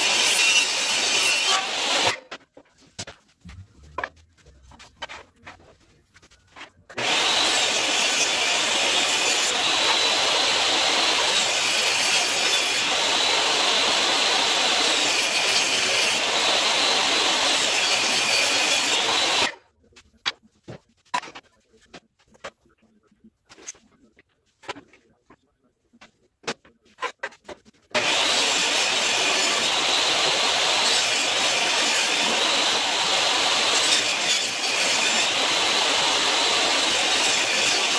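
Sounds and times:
table saw cutting wood: 0.0s - 2.4s, 7.0s - 19.6s, 27.9s - 37.9s.

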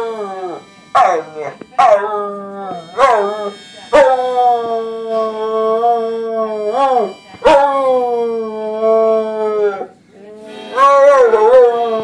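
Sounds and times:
dog howling: 10.7s - 12.0s.

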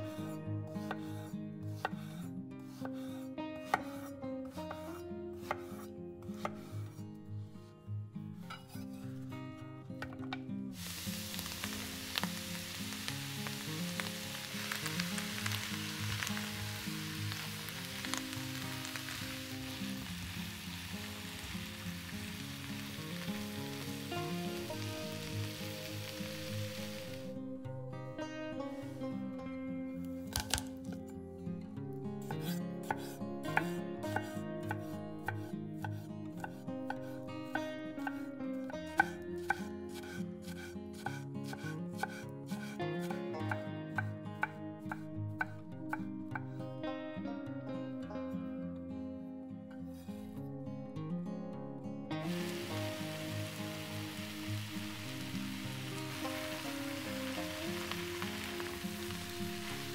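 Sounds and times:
soft background music: 0.0s - 59.9s
knife chopping vegetables: 0.8s - 6.7s, 30.3s - 30.7s, 32.2s - 38.3s, 38.9s - 45.6s
vegetables sizzling in oil: 10.8s - 27.3s, 52.2s - 59.9s.

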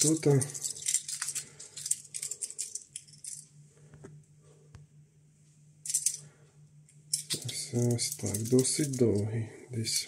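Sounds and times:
cable connector rattling: 0.0s - 3.5s, 7.1s - 9.3s.

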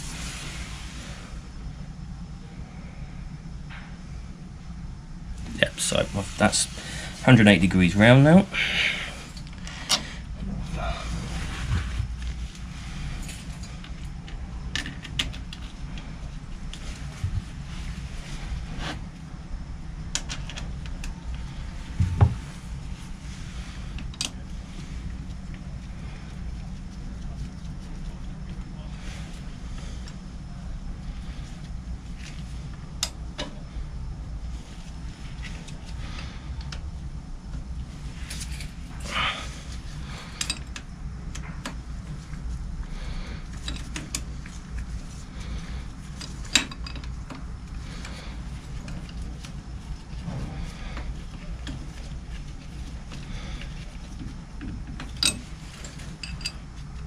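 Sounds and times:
low steady rumble: 0.0s - 57.0s
steady low hum: 0.0s - 57.0s
dull knock: 22.0s - 22.4s
metal parts clicking and tapping: 40.4s - 41.8s, 43.6s - 44.3s, 46.2s - 47.4s, 54.2s - 56.7s.

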